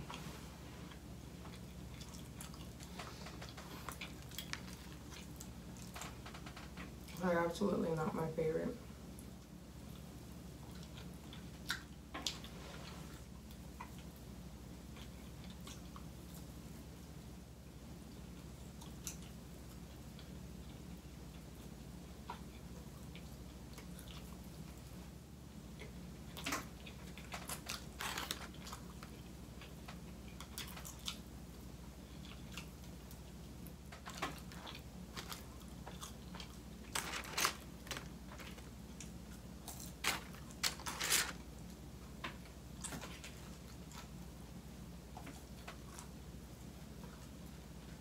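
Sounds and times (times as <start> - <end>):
person chewing crunchy food: 0.0 - 7.2, 9.8 - 16.6, 18.1 - 25.0, 25.7 - 44.4.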